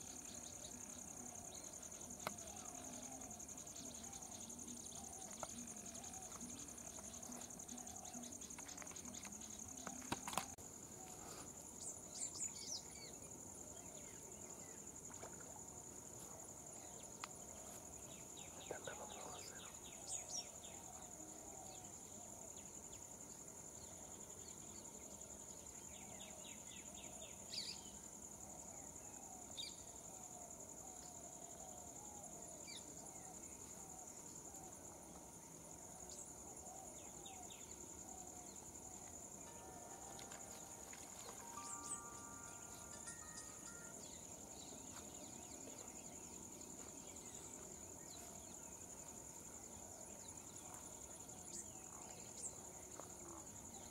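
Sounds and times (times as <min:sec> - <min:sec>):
high-pitched insect drone: 0:37.1 - 0:49.2
bird chirps and trills: 0:39.5 - 0:44.3.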